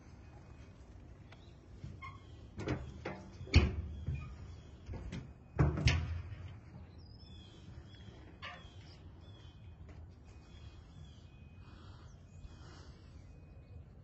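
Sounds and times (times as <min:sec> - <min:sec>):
faint bird chirps: 0:06.9 - 0:14.0.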